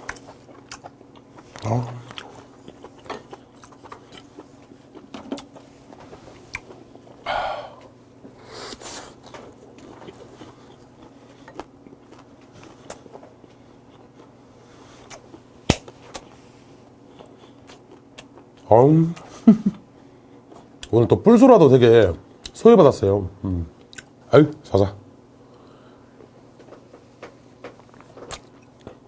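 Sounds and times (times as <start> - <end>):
person chewing food: 0.0 - 18.6, 26.6 - 29.0.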